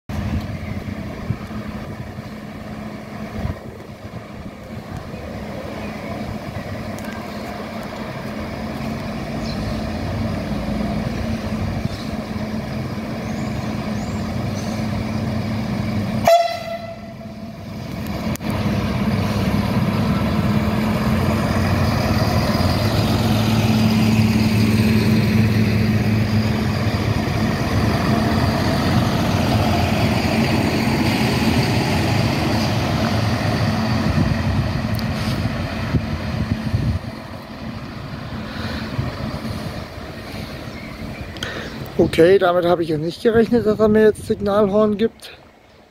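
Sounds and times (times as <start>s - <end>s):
diesel train engine humming: 0.1s - 45.9s
train horn blast: 16.2s - 17.5s.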